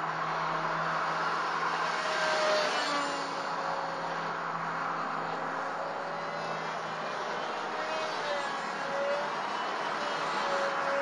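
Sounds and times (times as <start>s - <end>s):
model airplane motor whining: 5.7s - 11.0s.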